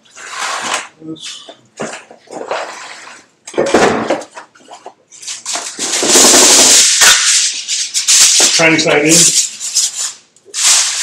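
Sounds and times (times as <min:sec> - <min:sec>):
aluminium foil crinkling: 0:05.2 - 0:11.0.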